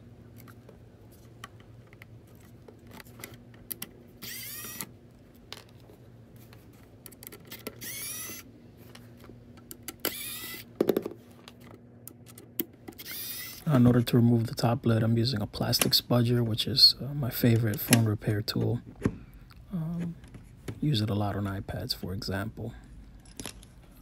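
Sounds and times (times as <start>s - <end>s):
electric screwdriver whirring: 4.2s - 4.9s, 7.7s - 8.5s, 10.0s - 10.7s, 12.9s - 13.7s.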